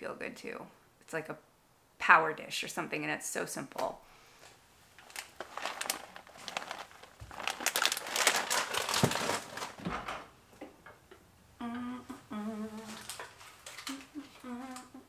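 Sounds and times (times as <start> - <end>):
fabric rustling on microphone: 4.9 - 9.8.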